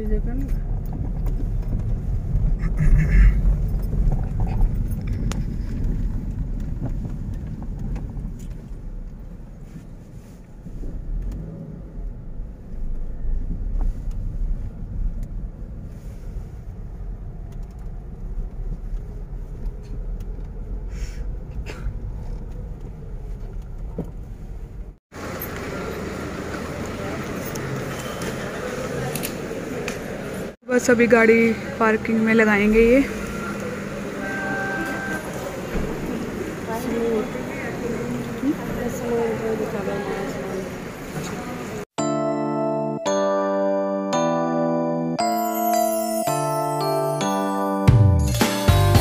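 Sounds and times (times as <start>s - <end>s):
car driving rumble inside cabin: 0.0s - 27.9s.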